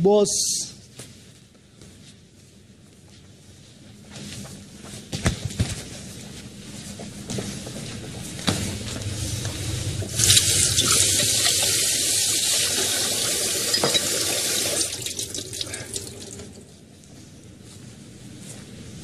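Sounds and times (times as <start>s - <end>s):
water running from a tap: 10.0s - 16.6s.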